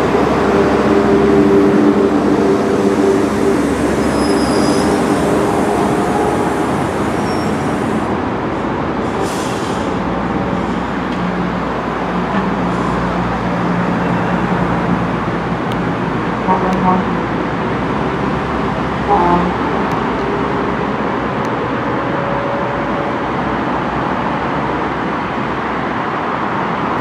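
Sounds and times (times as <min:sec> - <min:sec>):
electric train running hum: 0:00.0 - 0:09.2.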